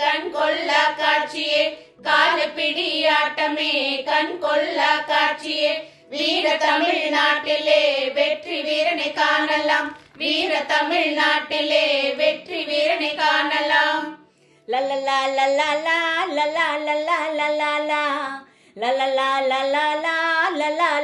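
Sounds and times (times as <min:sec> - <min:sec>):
group singing folk song: 0:00.0 - 0:14.2.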